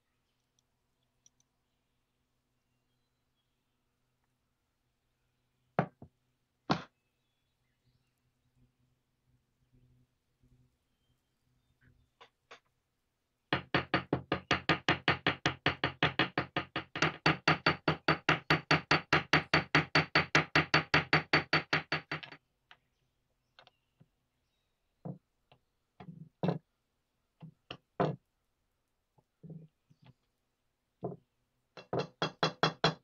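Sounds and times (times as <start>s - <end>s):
knocks: 31.8s - 33.0s.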